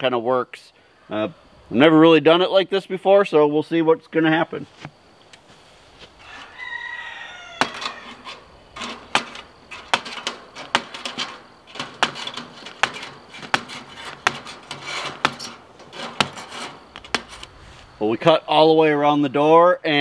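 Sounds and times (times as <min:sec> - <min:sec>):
wire snapping: 0:07.6 - 0:17.5
blade scraping wood: 0:07.6 - 0:17.9.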